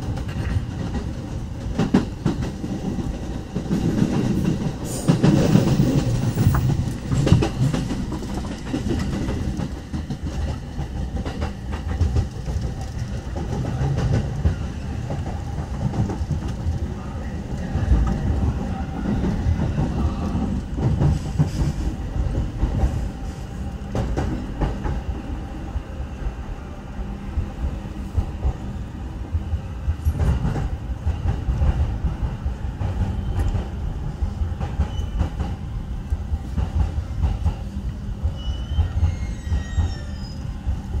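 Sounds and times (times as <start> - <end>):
train wheels clacking over rail joints: 0.0 - 16.6, 19.2 - 23.0
faint high brake squeals: 34.8 - 35.3, 38.3 - 40.6.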